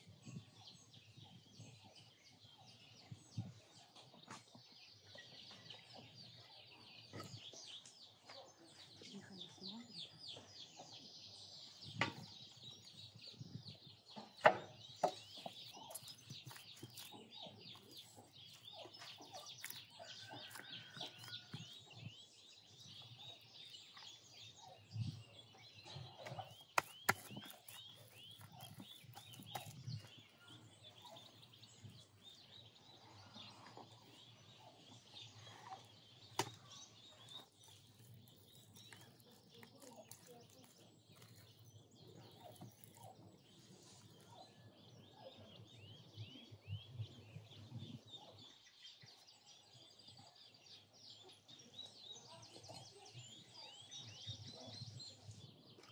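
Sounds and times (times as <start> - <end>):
birds chirping: 0.0 - 55.9.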